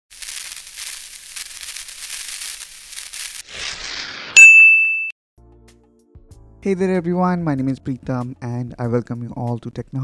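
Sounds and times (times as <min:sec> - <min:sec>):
high crackling hiss: 0:00.1 - 0:04.2
bright ringing ping: 0:04.4 - 0:05.1.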